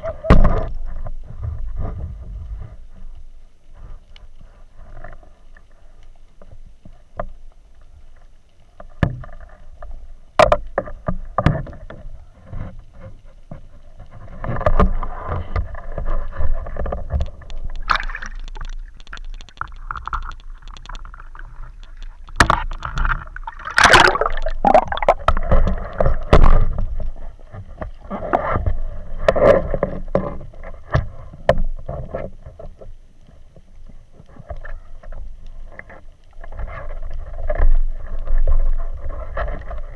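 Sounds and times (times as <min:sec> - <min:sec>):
seawater sloshing and splashing: 0:16.1 - 0:27.0.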